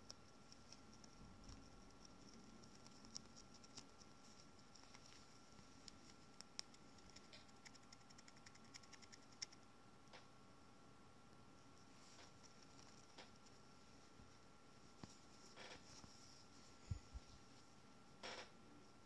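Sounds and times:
small rodent clicks and scratches: 0.0 - 10.3, 11.8 - 13.7.

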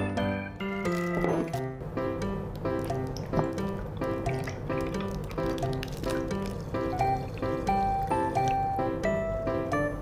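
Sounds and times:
background music: 0.0 - 10.0
milk pouring into a glass: 2.8 - 8.8.

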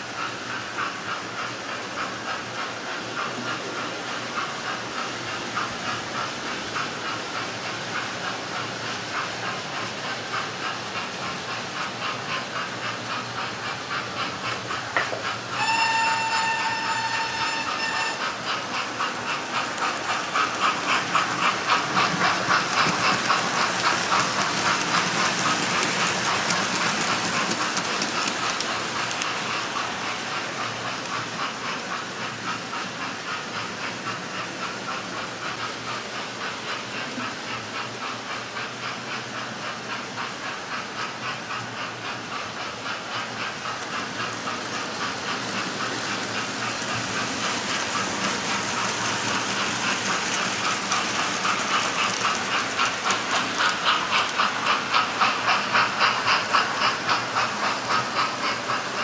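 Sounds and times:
model locomotives whirring: 0.0 - 59.0
wheels clicking over rail joints: 0.0 - 59.0.

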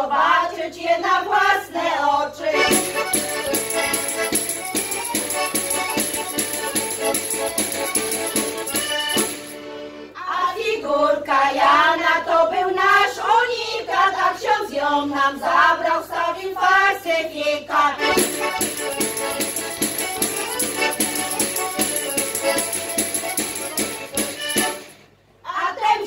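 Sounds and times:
women singing together: 0.0 - 2.8, 10.2 - 18.3, 25.4 - 26.0
rhythmic instrumental accompaniment: 2.6 - 10.1, 18.0 - 25.1.

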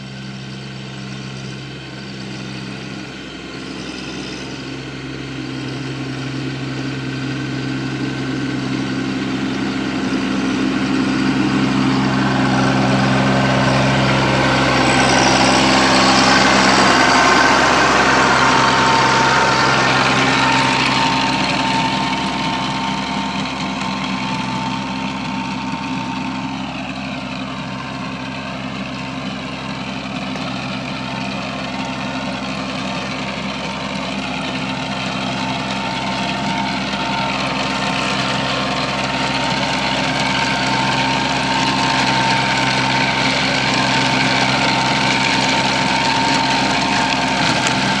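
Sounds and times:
rotavator tilling soil: 0.0 - 48.0
tractor diesel engine running: 0.0 - 48.0
steady high whine: 1.4 - 29.8.

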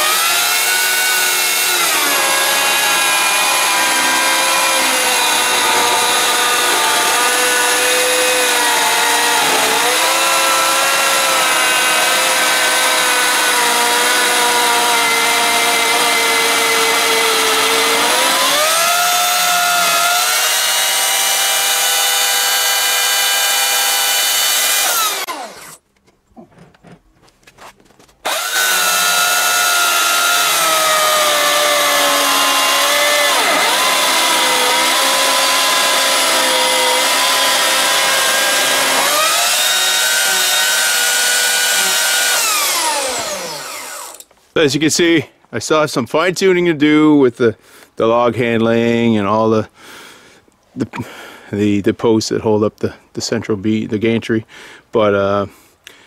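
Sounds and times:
electric chainsaw cutting log: 0.0 - 25.8, 28.2 - 44.3.

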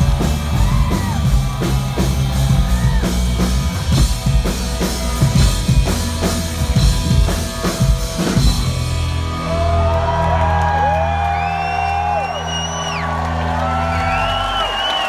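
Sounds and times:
audience whooping: 0.0 - 3.6, 9.0 - 15.0
drum hits: 0.0 - 8.9.

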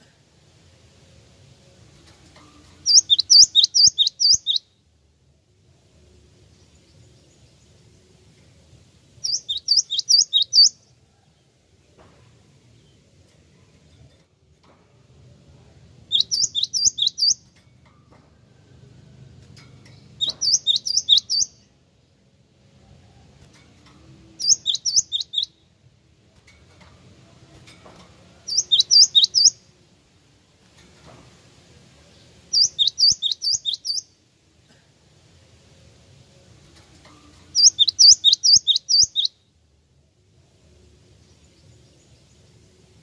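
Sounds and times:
bird singing high notes: 24.4 - 25.6.

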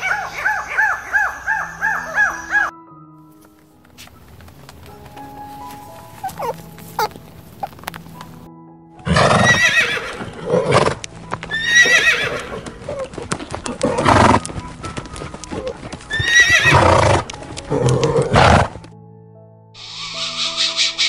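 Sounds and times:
horse whinnying: 9.0 - 13.1, 13.7 - 14.5, 15.6 - 18.8.

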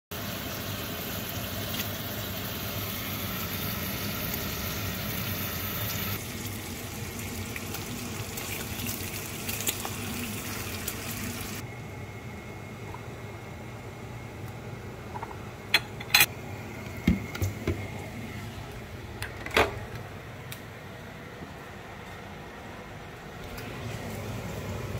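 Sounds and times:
food sizzling in frying pans: 0.1 - 11.6.

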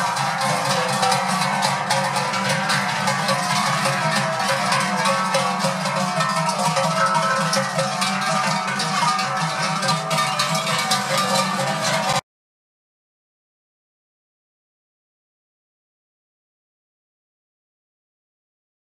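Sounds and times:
cowbells clanging: 0.0 - 12.2.

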